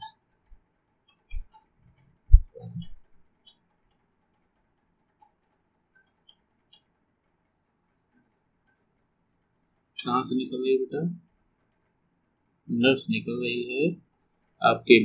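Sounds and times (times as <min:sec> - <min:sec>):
faint ticks: 0:00.0 - 0:10.0.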